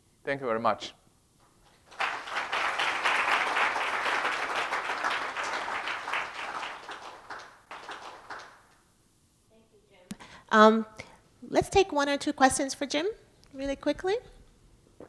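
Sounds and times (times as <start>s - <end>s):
audience applauding: 1.7s - 8.7s.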